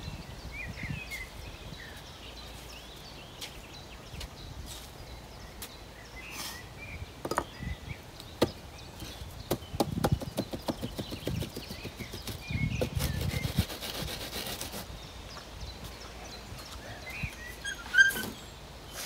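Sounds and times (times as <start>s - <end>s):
wooden boards knocking and scraping: 7.2s - 7.6s, 8.4s - 13.3s
rapid back-and-forth rubbing: 10.0s - 14.9s.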